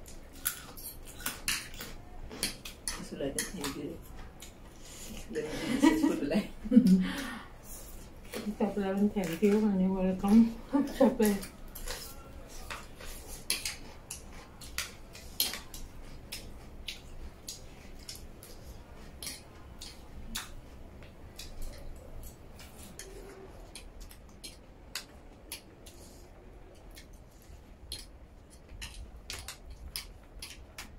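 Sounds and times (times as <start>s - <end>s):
cutlery clinking on metal trays: 0.0s - 4.6s.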